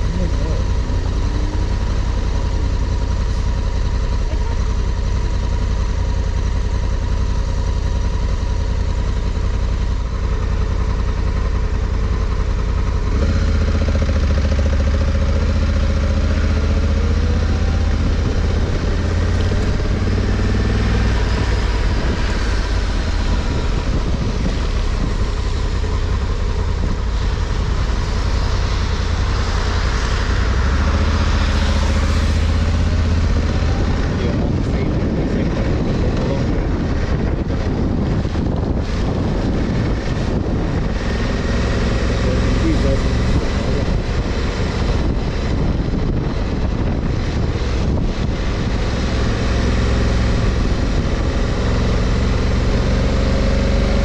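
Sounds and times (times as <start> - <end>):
motorcycle engine running: 0.0 - 54.0
wind rumble on microphone: 12.0 - 54.0.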